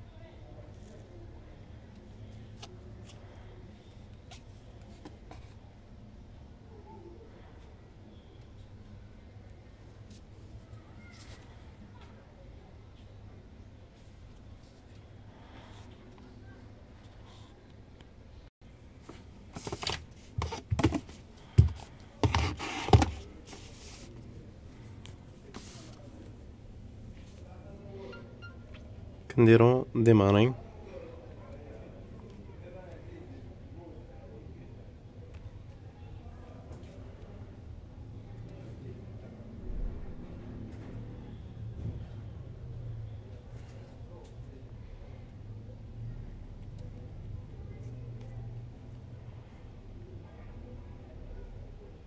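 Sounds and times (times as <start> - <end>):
knocks and rustles on desk: 19.0 - 23.3.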